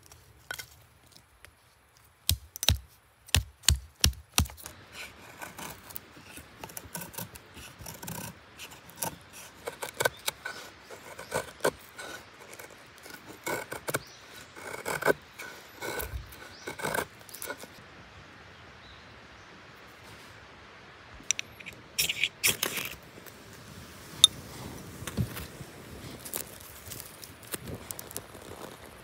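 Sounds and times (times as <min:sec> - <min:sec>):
knife shaving wood: 0:02.3 - 0:17.8, 0:25.0 - 0:29.0.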